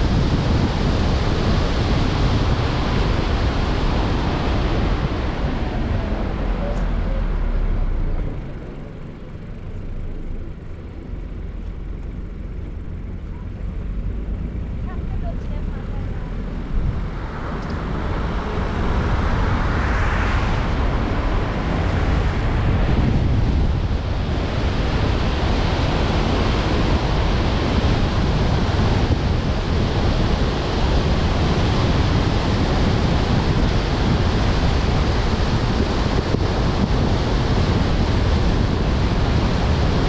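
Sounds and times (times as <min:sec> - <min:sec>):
wind buffeting microphone: 0:00.0 - 0:08.6, 0:11.3 - 0:40.0
tyres hissing on wet road: 0:15.1 - 0:23.1.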